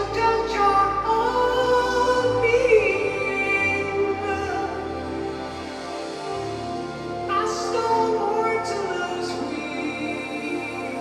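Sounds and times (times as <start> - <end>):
high lead vocal with vibrato: 0.0 - 5.8.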